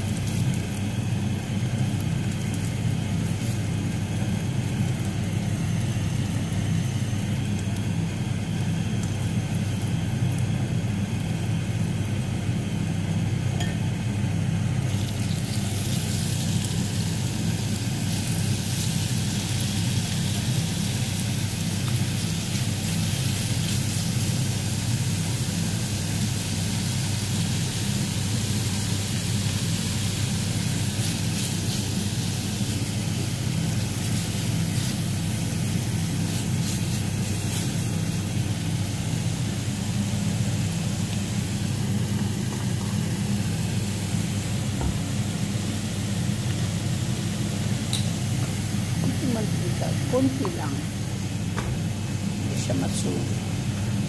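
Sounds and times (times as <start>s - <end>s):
chicken sizzling in hot oil: 0.0s - 54.0s
steady low hum: 0.0s - 54.0s.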